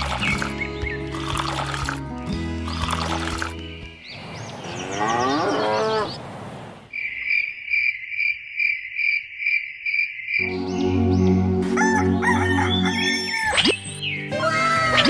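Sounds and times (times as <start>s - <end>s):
small birds chirping: 0.0s - 15.0s
low cow-like call: 4.8s - 6.2s
crickets chirping: 6.8s - 10.5s
rooster crowing: 11.7s - 13.6s.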